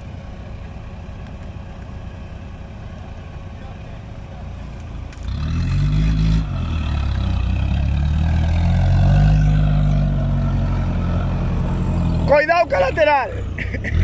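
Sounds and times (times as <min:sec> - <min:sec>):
engine revving hard: 0:05.3 - 0:14.0.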